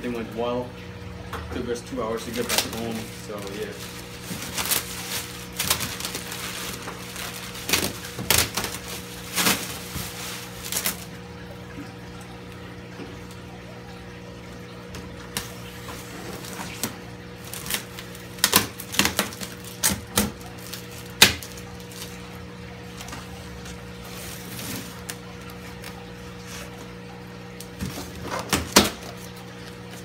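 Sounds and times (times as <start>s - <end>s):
packing tape ripping: 2.3s - 11.1s, 17.5s - 22.2s.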